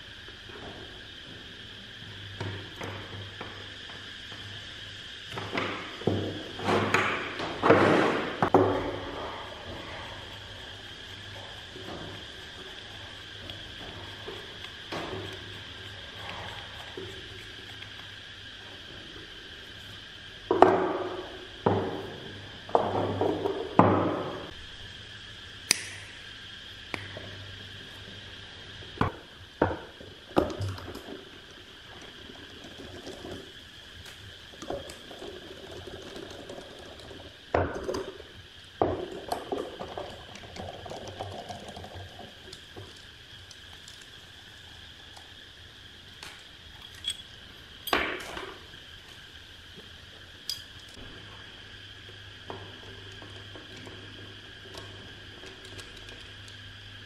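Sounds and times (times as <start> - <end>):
faint high whine: 0.0 - 57.0
small metal parts clinking: 46.8 - 48.0.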